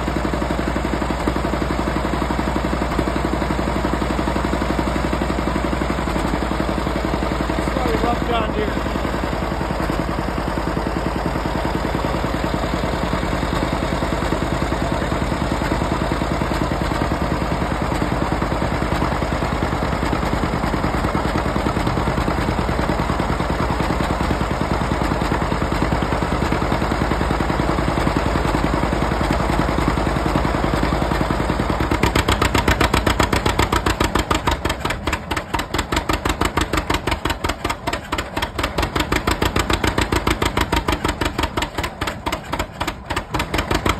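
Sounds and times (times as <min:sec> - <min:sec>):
diesel engine firing rapid pulsing: 0:00.0 - 0:43.9
two-cylinder engine running: 0:00.0 - 0:43.9.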